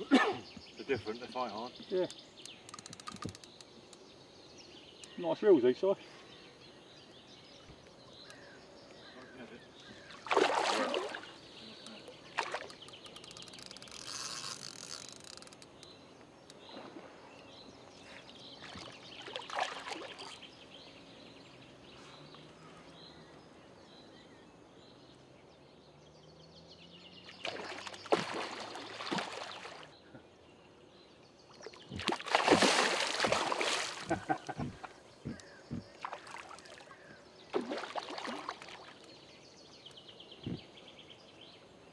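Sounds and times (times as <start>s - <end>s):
fish splashing at surface: 10.2s - 11.3s, 27.4s - 29.8s, 32.0s - 34.2s, 37.5s - 39.0s.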